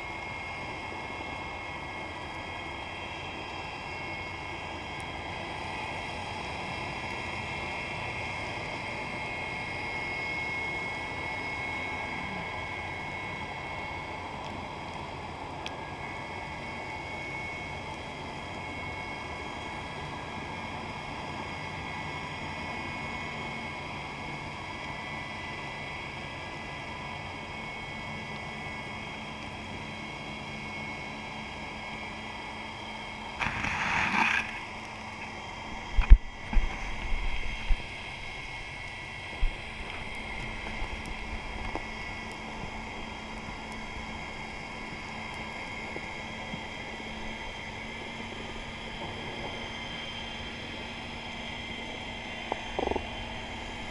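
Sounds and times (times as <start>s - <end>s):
distant boat engine humming: 28.6s - 53.9s
underwater hiss: 33.4s - 34.6s.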